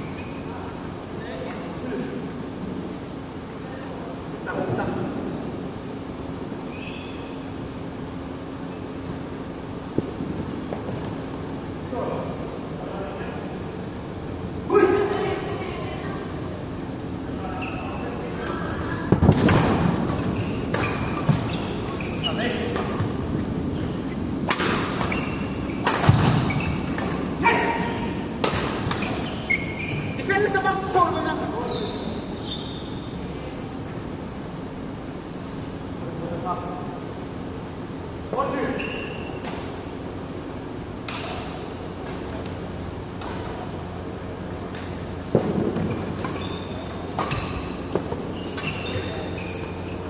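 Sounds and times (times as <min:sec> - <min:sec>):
shoe squeaks on court: 0:00.0 - 0:00.5, 0:06.7 - 0:07.4, 0:17.6 - 0:18.2, 0:20.2 - 0:24.3, 0:25.0 - 0:27.0, 0:28.9 - 0:30.2, 0:31.6 - 0:33.2, 0:38.7 - 0:39.5, 0:45.8 - 0:50.0
steady low hum: 0:00.0 - 0:50.0
racket hitting shuttlecock: 0:24.4 - 0:25.2, 0:25.8 - 0:29.3.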